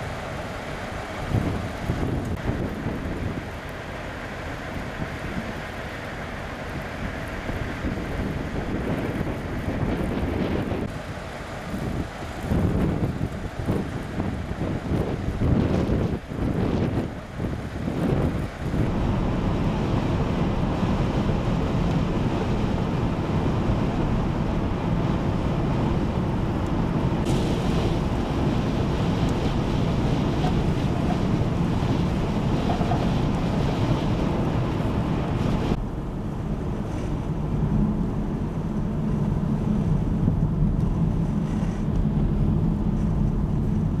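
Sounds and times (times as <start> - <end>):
vehicles on highway: 0.0 - 44.0
wind blowing across microphone: 0.0 - 44.0
low drone: 18.5 - 44.0.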